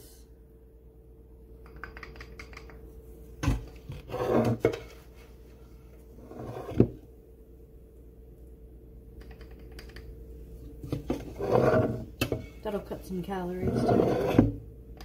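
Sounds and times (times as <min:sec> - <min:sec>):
steady hum: 0:00.0 - 0:15.0
spoon scraping ceramic cup: 0:04.0 - 0:04.8, 0:11.2 - 0:12.6, 0:13.6 - 0:14.5
rubbing scrape: 0:04.0 - 0:04.9, 0:06.2 - 0:06.9, 0:11.2 - 0:12.7, 0:13.6 - 0:14.5.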